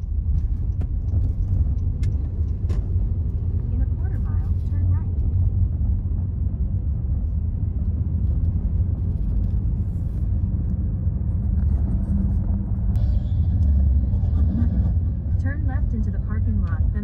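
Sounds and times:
car road and engine rumble: 0:00.0 - 0:17.0.

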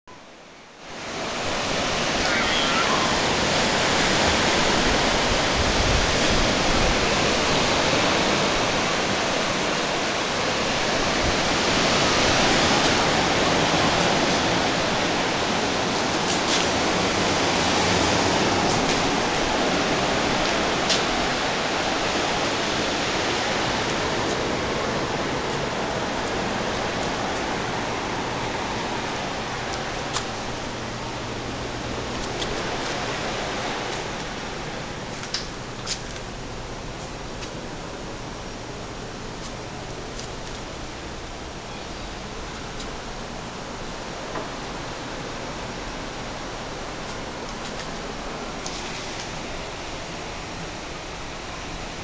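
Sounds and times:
wind: 0:00.0 - 0:52.0
surf breaking on beach: 0:00.9 - 0:35.1.

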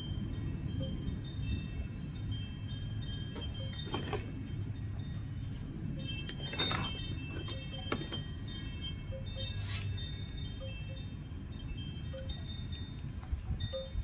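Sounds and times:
low steady rumble: 0:00.0 - 0:14.0
wind chimes ringing: 0:00.0 - 0:14.0
knife scraping coconut husk: 0:09.5 - 0:10.0.

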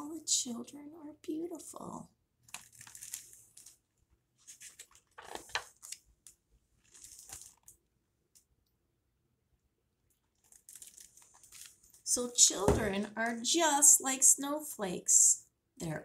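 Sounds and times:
book pages rustling: 0:02.5 - 0:07.8, 0:10.4 - 0:12.0.

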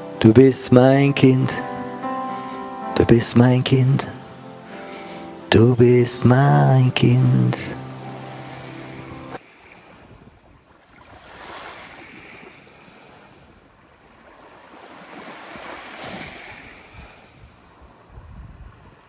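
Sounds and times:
waves washing onto beach: 0:06.9 - 0:19.0
wind rumble on microphone: 0:09.9 - 0:11.3, 0:16.1 - 0:19.0.

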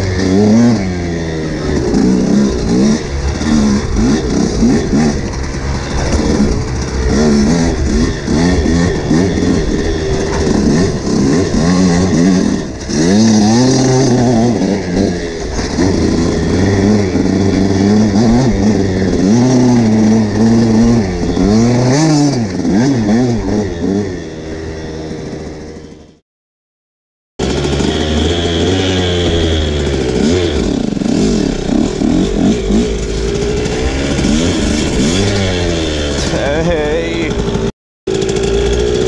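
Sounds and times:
motocross engine revving: 0:00.0 - 0:26.2, 0:27.4 - 0:39.0.

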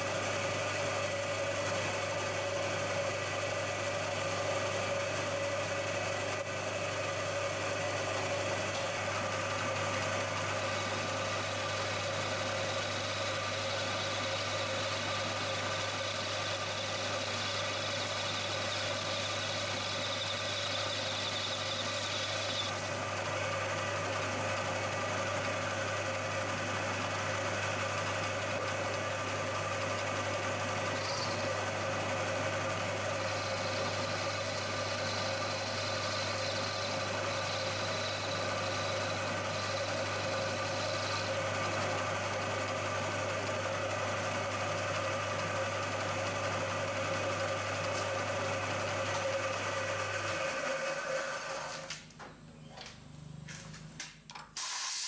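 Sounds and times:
milling machine running: 0:00.0 - 0:51.9.

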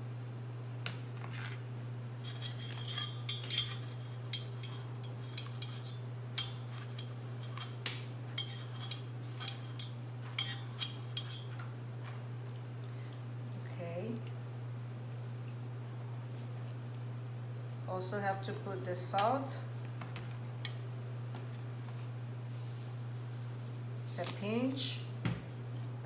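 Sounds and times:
steady low hum: 0:00.0 - 0:26.0
spatula scraping metal strainer: 0:02.2 - 0:07.8, 0:08.4 - 0:11.5.

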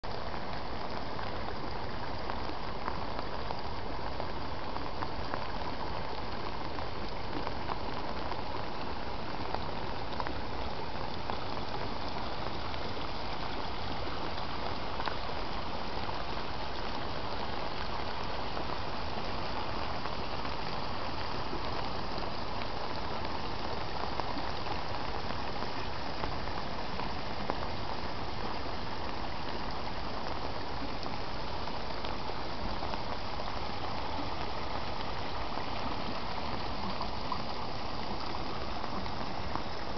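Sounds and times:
stream and waterfall rushing: 0:00.0 - 0:39.9.

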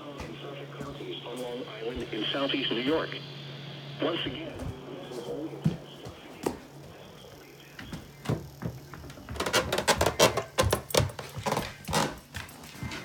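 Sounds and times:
hands fumbling at a door: 0:08.3 - 0:12.5.

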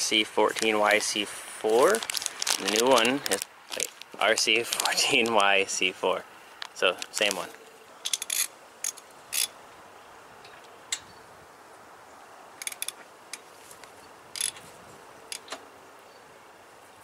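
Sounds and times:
ratchet wrench clicking: 0:12.6 - 0:13.0, 0:14.4 - 0:14.6.

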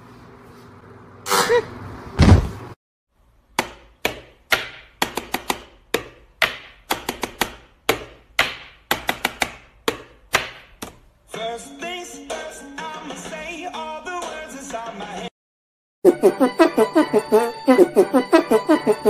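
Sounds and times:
heavy thump sound effect: 0:02.2 - 0:02.8.

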